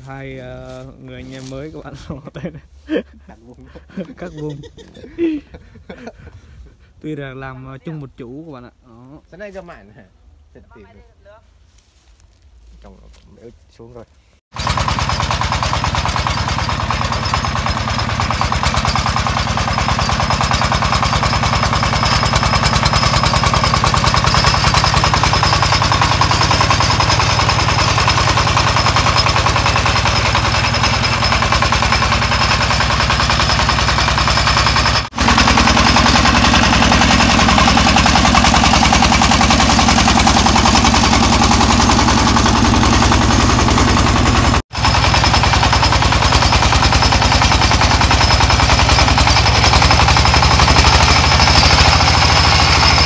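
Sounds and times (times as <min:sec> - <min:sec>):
diesel engine chugging: 0:00.0 - 0:08.4, 0:13.9 - 0:53.0.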